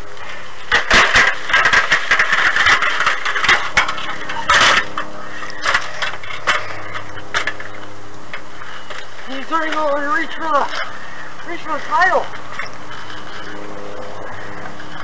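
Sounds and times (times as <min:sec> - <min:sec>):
ladder rattling and knocking: 0:00.7 - 0:06.8.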